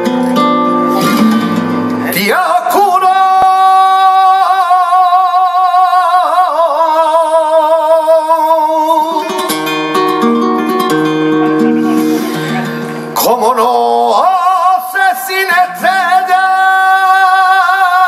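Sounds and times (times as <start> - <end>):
flamenco guitar: 0.0 - 18.0
man singing a long held note: 2.0 - 9.6, 13.2 - 18.0.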